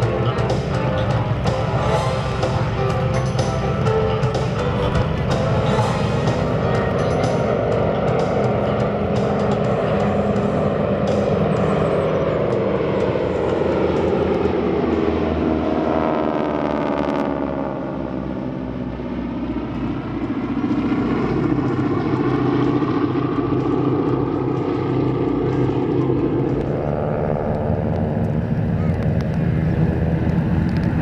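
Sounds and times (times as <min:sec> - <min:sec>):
propeller aircraft engines droning: 0:00.0 - 0:31.0.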